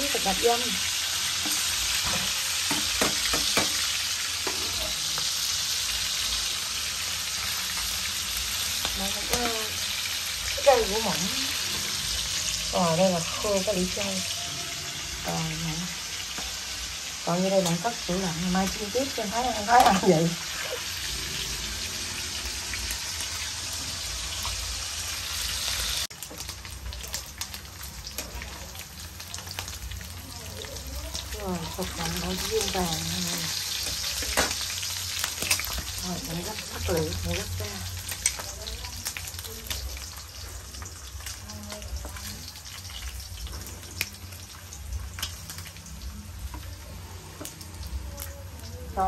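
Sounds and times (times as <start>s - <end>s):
meat sizzling in a frying pan: 0.0s - 49.0s.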